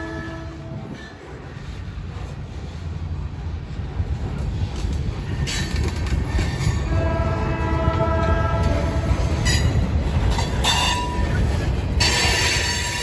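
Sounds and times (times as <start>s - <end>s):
freight train wheels rumbling: 0.0s - 13.0s
wheels clacking on rail: 0.0s - 13.0s
steel wheels squealing: 9.3s - 13.0s.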